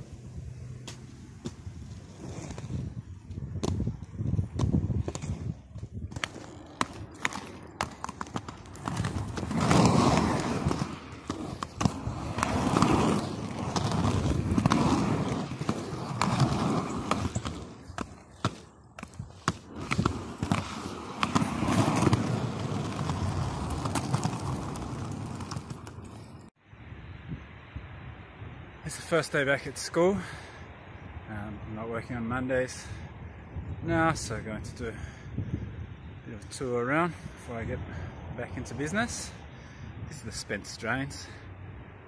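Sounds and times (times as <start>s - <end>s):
skate wheels rolling on concrete: 0.0s - 26.6s, 31.4s - 41.5s.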